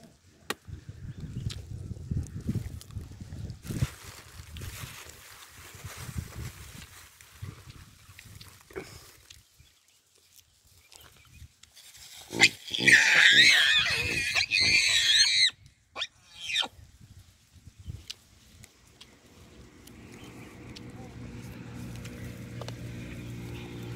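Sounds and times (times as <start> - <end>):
baboons screaming: 12.3 - 16.7.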